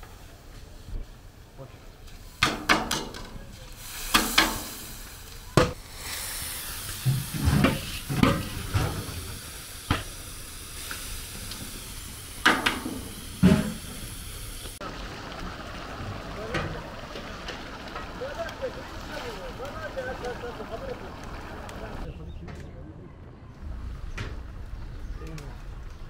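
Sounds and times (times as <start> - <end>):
sharp clanks and knocks: 2.4 - 3.4, 12.4 - 14.0
food sizzling in a pot: 3.8 - 18.1.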